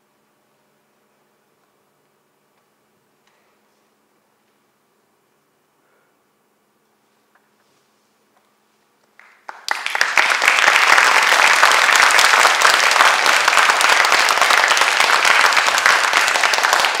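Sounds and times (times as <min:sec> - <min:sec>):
audience applause: 0:09.2 - 0:17.0.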